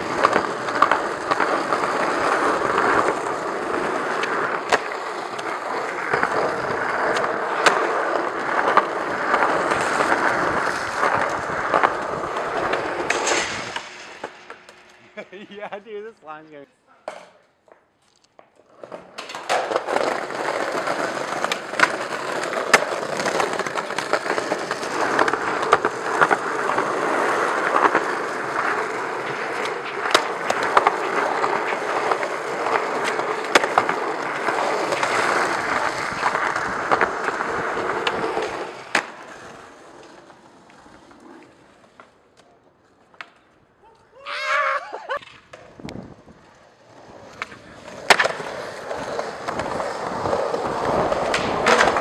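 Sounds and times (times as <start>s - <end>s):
skateboard clacks: 0.0s - 15.2s, 17.0s - 44.1s, 45.1s - 52.0s
skateboard wheels rolling on concrete: 0.0s - 52.0s.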